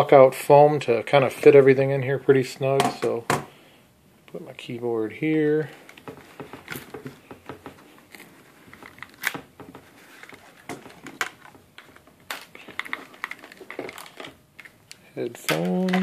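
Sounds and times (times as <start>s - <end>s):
headphone cables rustling: 5.2s - 16.0s.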